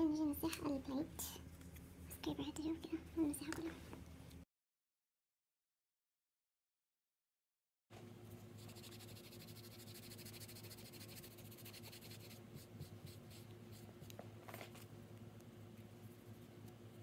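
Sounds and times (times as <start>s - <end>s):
steady low hum: 8.0s - 17.0s.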